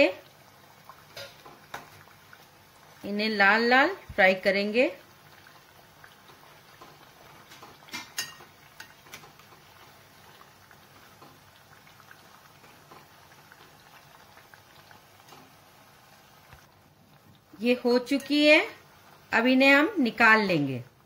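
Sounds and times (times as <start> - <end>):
oil sizzling and crackling: 0.0 - 21.0
metal spoon clicking on pan: 7.9 - 9.3.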